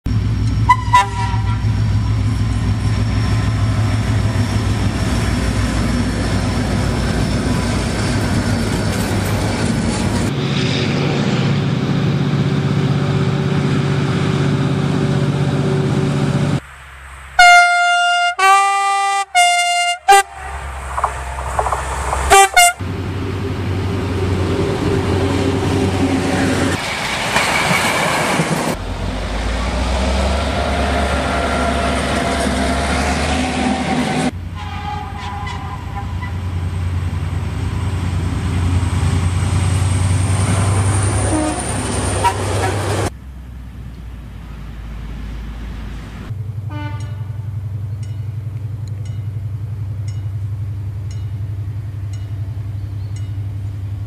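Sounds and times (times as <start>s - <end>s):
locomotive engine drone: 0.1s - 54.0s
multi-tone air horn blasts: 0.6s - 1.7s, 17.4s - 21.5s, 22.2s - 22.8s, 34.6s - 36.4s, 41.3s - 42.8s, 46.7s - 47.5s.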